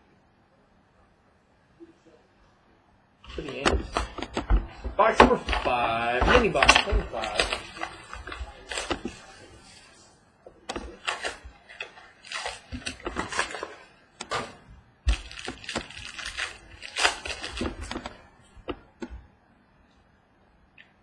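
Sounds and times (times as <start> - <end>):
foil wrapper crinkling: 3.3 - 10.1, 10.7 - 14.5, 15.1 - 18.8.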